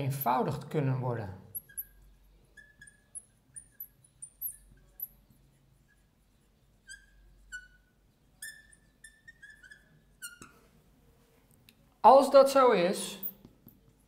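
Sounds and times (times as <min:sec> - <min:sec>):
marker pen squeaking on glass: 0:01.5 - 0:10.7.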